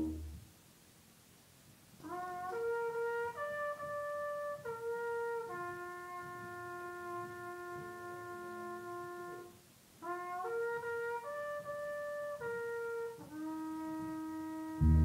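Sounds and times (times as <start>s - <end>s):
slow brass melody: 0.0s - 0.4s, 2.0s - 15.0s.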